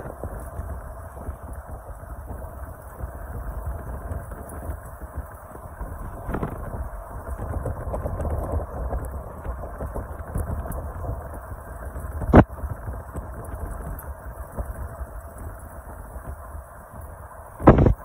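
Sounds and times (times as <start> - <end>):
engine running: 0.0 - 18.0
wind buffeting microphone: 0.0 - 18.0.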